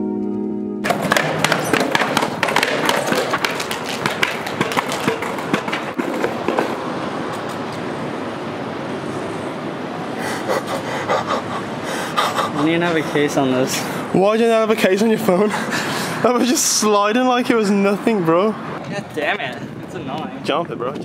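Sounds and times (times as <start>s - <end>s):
skateboard wheels rolling on concrete: 0.8s - 10.2s
skateboard clacks and knocks: 0.9s - 7.6s.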